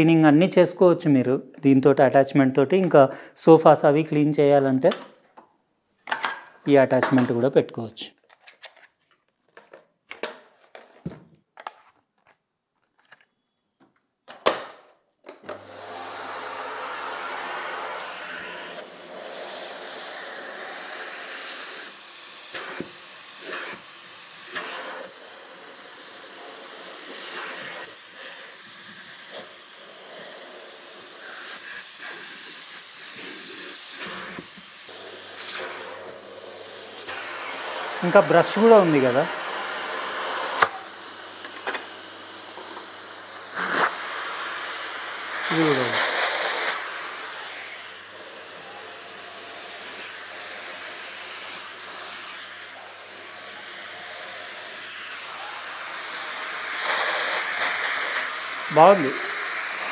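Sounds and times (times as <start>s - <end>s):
vacuum cleaner running: 15.3s - 59.9s.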